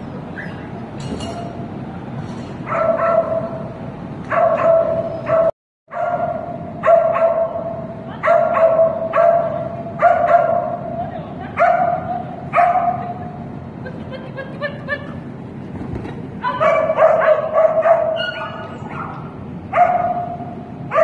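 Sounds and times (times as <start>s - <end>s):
dog barking high-pitched: 2.7s - 3.7s, 4.3s - 10.8s, 11.6s - 13.2s, 16.4s - 21.0s.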